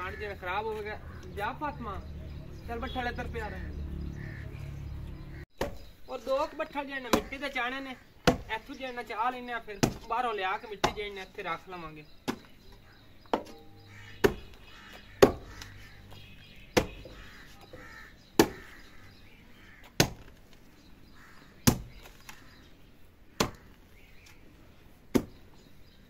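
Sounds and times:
hoe chopping into hard earth: 19.9s - 20.4s, 25.1s - 25.4s.

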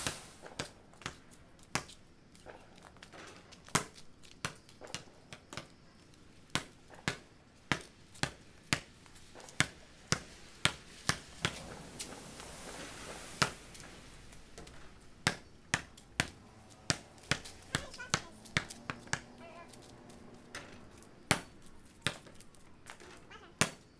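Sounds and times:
basketball bouncing on pavement: 0.0s - 11.6s, 14.5s - 23.9s.

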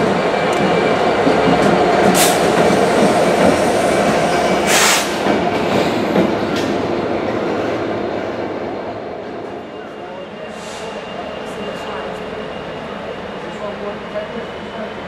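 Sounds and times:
diesel locomotive passing: 0.0s - 15.0s
short hissing bursts: 4.7s - 5.2s.

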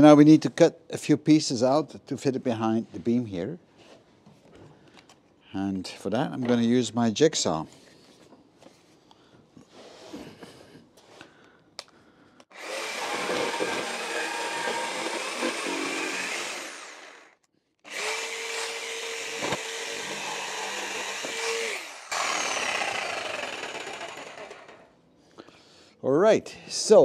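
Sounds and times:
electric jigsaw cutting wood: 12.5s - 24.9s.

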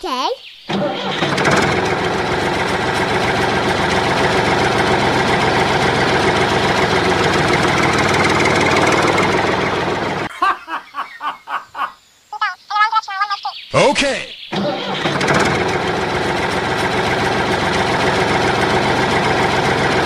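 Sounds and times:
small engine running: 0.7s - 10.3s, 14.5s - 20.0s.

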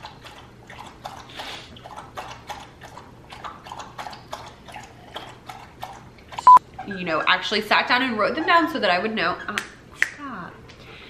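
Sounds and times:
dog lapping water: 0.0s - 6.9s.

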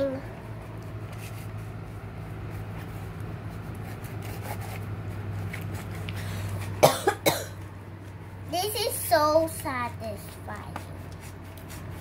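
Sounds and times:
steady low hum: 0.0s - 12.0s
spatula stirring slime: 8.0s - 12.0s.

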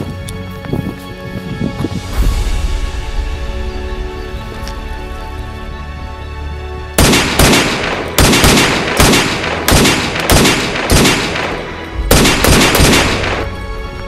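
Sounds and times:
echoing gunshots: 7.0s - 13.6s.

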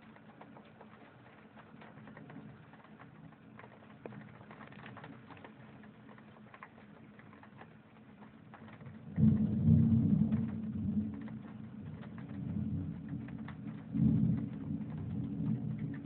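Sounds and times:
rain pattering: 0.0s - 16.0s
thunder rumble: 9.0s - 16.0s.

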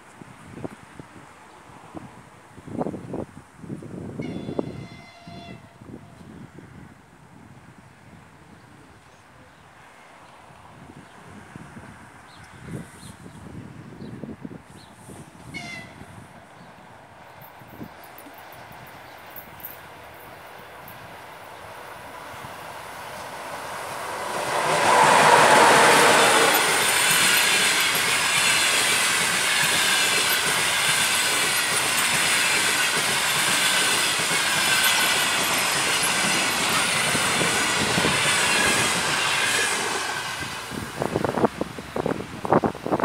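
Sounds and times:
wind buffeting microphone: 0.2s - 9.0s, 10.6s - 43.0s
electric locomotive passing: 15.4s - 43.0s
train wheels rushing on rails: 17.2s - 43.0s.

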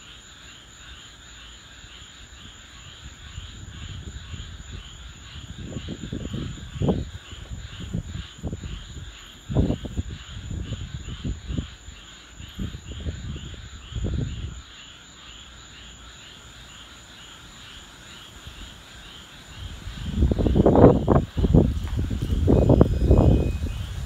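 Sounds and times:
frogs calling: 0.0s - 24.0s
insects trilling: 0.0s - 24.0s
wind buffeting microphone: 2.4s - 14.7s, 19.4s - 24.0s.

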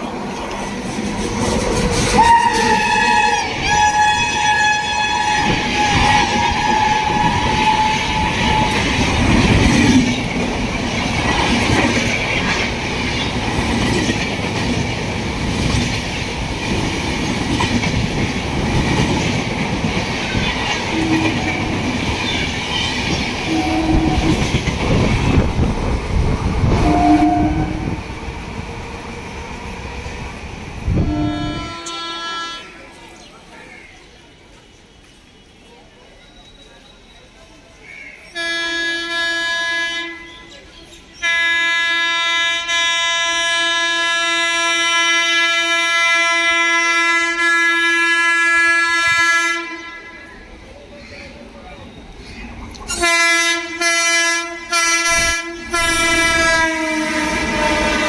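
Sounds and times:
train coaches rushing past: 0.0s - 58.0s
locomotive horn: 2.0s - 9.1s, 20.9s - 21.9s, 23.4s - 24.6s, 26.6s - 28.0s, 30.9s - 33.0s, 38.3s - 40.5s, 41.2s - 50.3s, 52.9s - 58.0s.

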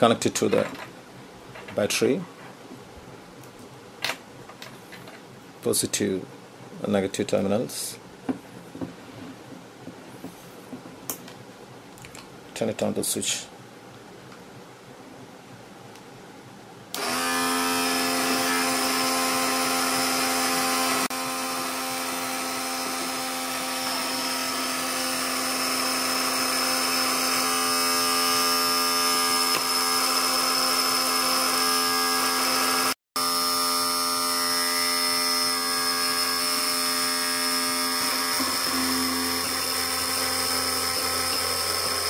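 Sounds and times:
small electric motor whining: 16.9s - 42.0s.

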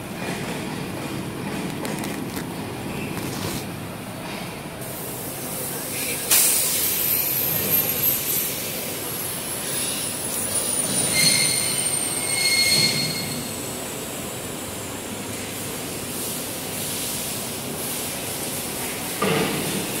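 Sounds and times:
brief squealing tones: 9.8s - 13.5s.

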